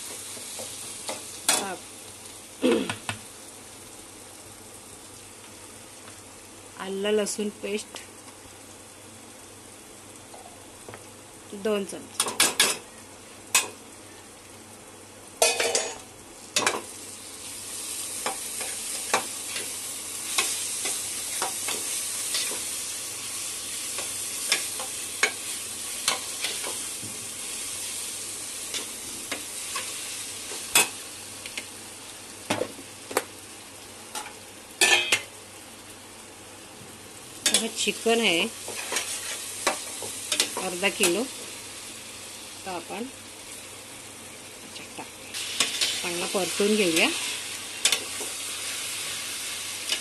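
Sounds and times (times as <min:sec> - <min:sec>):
paste sizzling in hot oil: 0:00.0 - 0:02.6, 0:15.4 - 0:32.5, 0:37.3 - 0:44.6, 0:45.2 - 0:50.0.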